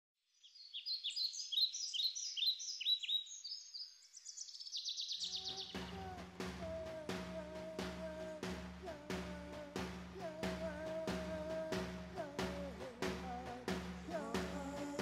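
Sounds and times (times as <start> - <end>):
birds chirping: 0.4 - 15.0
music with drone and drums: 5.7 - 15.0.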